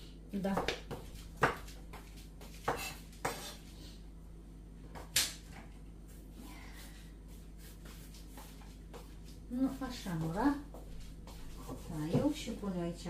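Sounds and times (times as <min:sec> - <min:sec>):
knife chopping on wooden board: 0:00.5 - 0:03.6.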